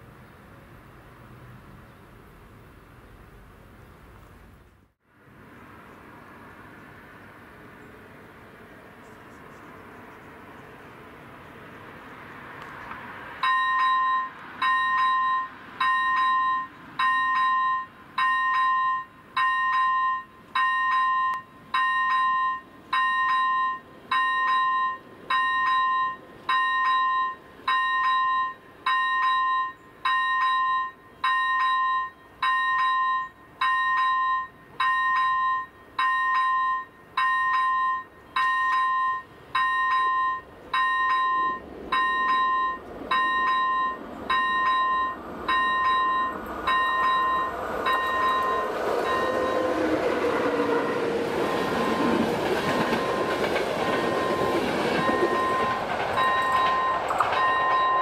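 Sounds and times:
level crossing warning bell: 13.4s - 58.0s.

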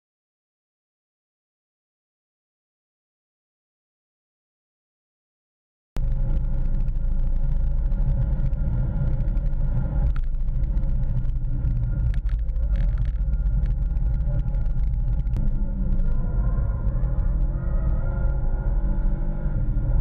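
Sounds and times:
car engine deep drone: 6.0s - 20.0s
road and wind noise: 6.0s - 20.0s.

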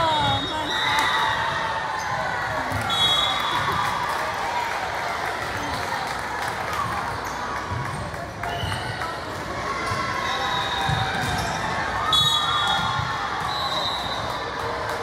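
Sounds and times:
volleyballs thudding on gym floor: 10.8s - 11.6s.

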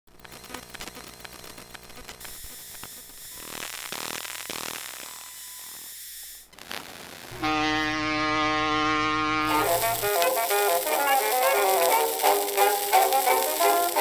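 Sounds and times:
model locomotive hiss: 9.4s - 14.0s
rapid clicks: 9.5s - 14.0s.

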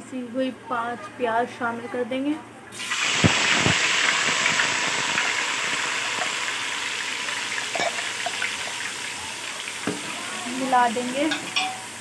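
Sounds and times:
paste sizzling in hot oil: 2.8s - 12.0s
ladle knocking on pot: 9.8s - 10.1s.

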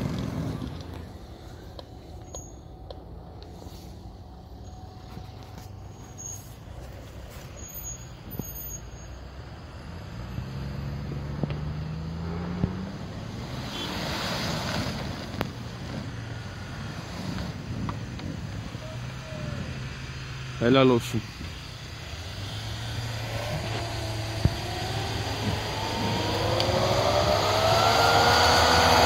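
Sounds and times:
car engine revving hard: 0.0s - 1.0s, 10.1s - 15.4s, 19.2s - 29.0s
tyres spinning in snow: 0.0s - 2.6s, 3.6s - 29.0s.

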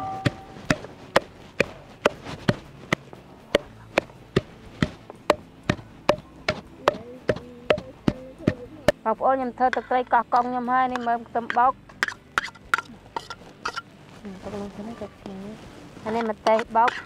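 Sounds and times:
knife chopping on a board: 0.1s - 9.0s.

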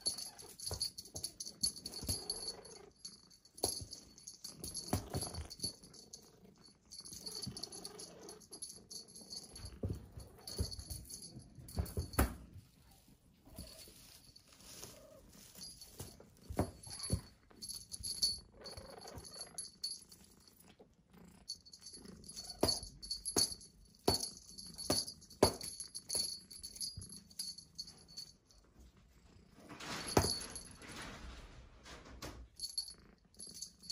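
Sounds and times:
kitten knocking and rustling: 9.6s - 12.6s.

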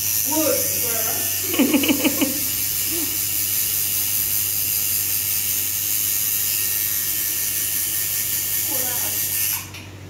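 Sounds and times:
tattoo machine buzzing: 0.0s - 9.9s
burst of laughter: 1.5s - 2.5s.

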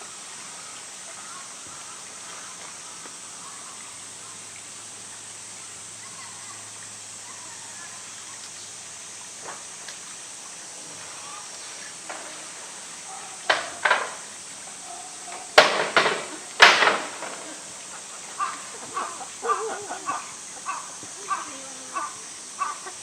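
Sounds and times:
toys knocking against concrete: 13.4s - 14.3s, 15.3s - 17.7s.

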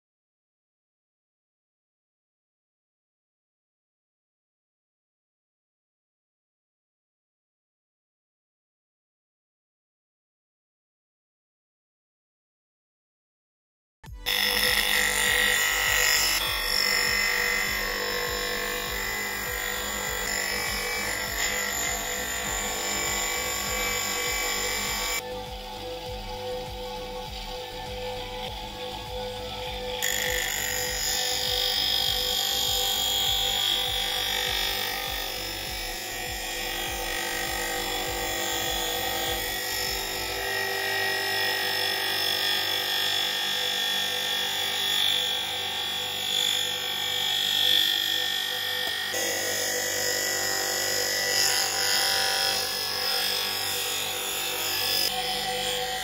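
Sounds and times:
background music with beat: 14.1s - 40.4s
bench grinder grinding wood: 14.2s - 56.0s.

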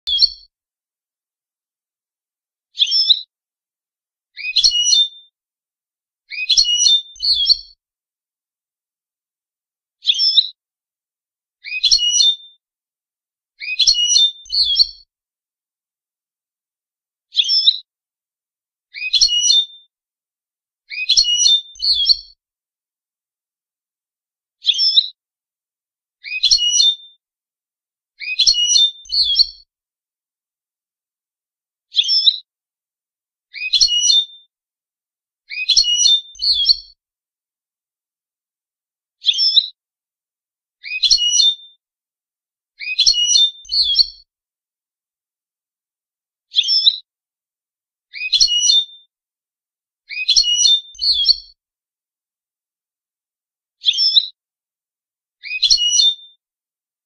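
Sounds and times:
goldfinch singing: 0.1s - 0.4s, 6.3s - 7.7s, 42.9s - 44.2s
goldfinch twittering song: 0.1s - 0.5s, 2.8s - 3.3s, 6.3s - 7.8s, 13.6s - 15.1s, 17.3s - 17.8s, 20.9s - 22.4s, 28.3s - 29.6s, 35.5s - 37.0s, 40.9s - 41.8s, 42.9s - 44.2s, 46.5s - 47.0s, 50.1s - 51.5s, 53.8s - 54.3s.

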